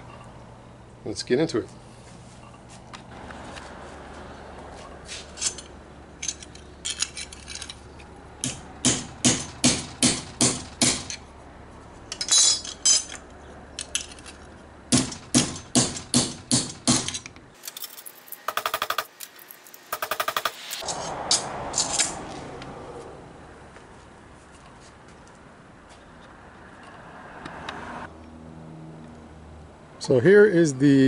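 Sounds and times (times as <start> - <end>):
hammer striking steel: 8.4 - 11.2, 14.9 - 17.2.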